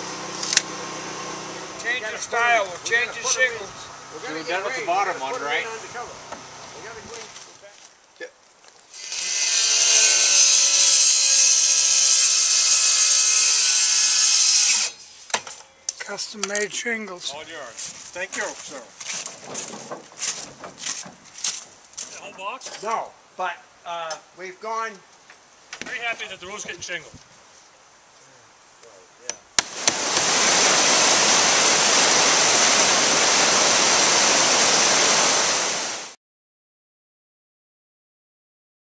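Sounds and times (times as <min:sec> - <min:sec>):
circular saw cutting wood: 0:00.0 - 0:07.5, 0:08.9 - 0:15.2, 0:29.6 - 0:36.1
water rushing through a dam sluiceway: 0:29.7 - 0:36.2.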